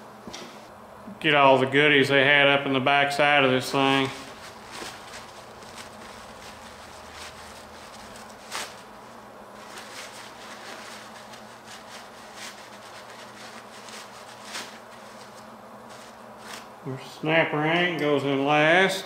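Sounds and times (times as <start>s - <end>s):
low steady hum: 0.0s - 19.0s
paper towel rustling and crinkling: 3.3s - 16.7s.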